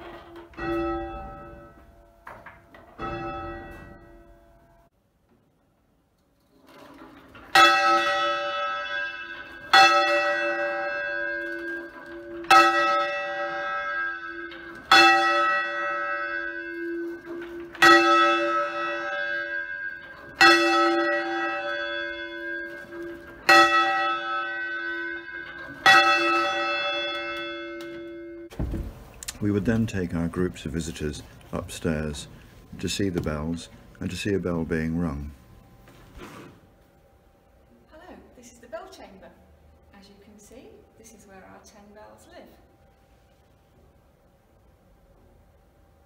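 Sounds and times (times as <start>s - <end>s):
church bell ringing: 0.0s - 4.9s, 7.4s - 28.5s, 29.4s - 35.7s.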